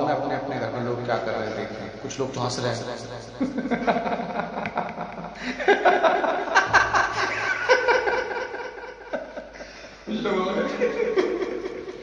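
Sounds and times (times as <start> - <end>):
man laughing: 3.4 - 9.6.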